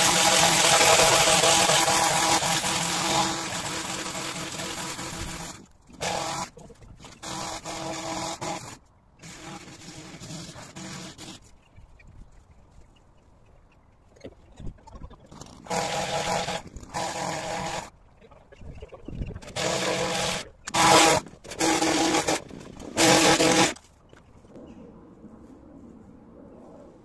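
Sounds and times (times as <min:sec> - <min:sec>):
petrol hedge trimmer revving: 0:00.0 - 0:06.6, 0:07.2 - 0:11.4, 0:15.6 - 0:17.9, 0:19.4 - 0:23.8.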